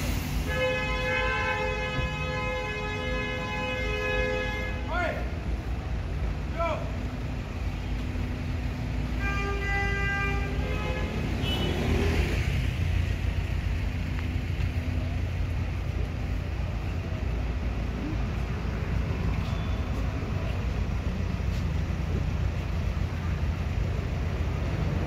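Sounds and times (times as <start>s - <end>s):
passing cars and vans: 0.0s - 25.0s
car horn: 0.4s - 5.3s, 9.1s - 12.5s.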